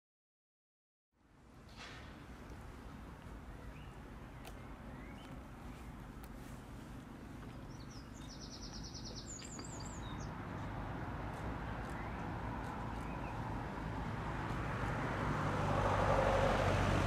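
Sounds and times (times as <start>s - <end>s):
bird chirps: 3.5s - 6.0s, 7.4s - 10.7s, 11.8s - 13.5s
songbird trill: 3.5s - 6.0s, 7.4s - 10.7s, 11.7s - 13.6s.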